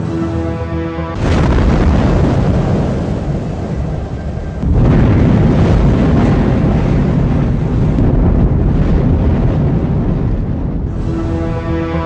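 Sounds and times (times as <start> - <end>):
volcano rumbling: 1.2 - 12.0.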